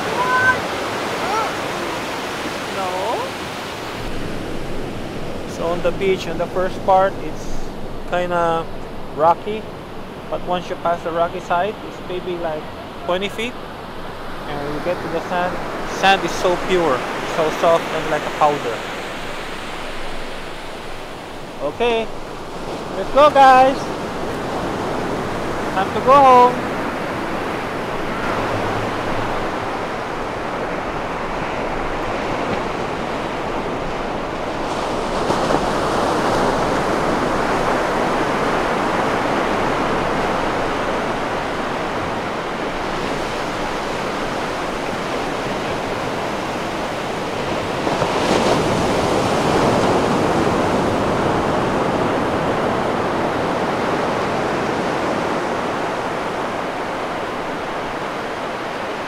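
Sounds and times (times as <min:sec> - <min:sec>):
waves breaking: 0:00.0 - 0:59.0.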